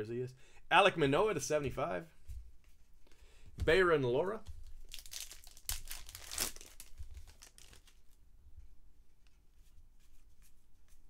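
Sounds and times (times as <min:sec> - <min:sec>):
cards rustling and clicking: 0:04.4 - 0:08.1
plastic wrapper crinkling: 0:04.5 - 0:08.2.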